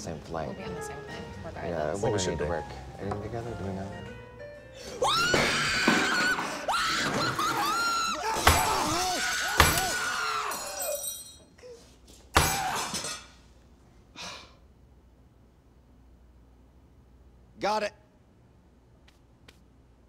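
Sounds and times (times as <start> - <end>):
people screaming in panic: 5.0 - 11.0.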